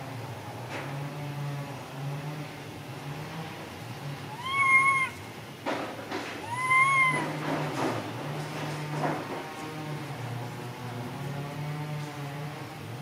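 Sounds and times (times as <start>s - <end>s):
monkey coo calls: 4.3s - 5.3s, 6.4s - 7.4s.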